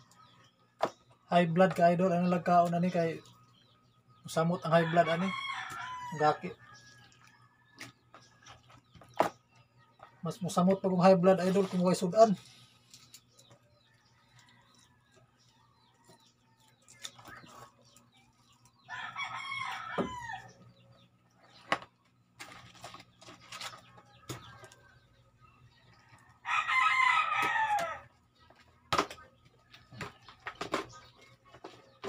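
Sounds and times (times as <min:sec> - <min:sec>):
rooster crowing: 0:04.8 - 0:06.8, 0:18.9 - 0:20.5, 0:26.4 - 0:28.1.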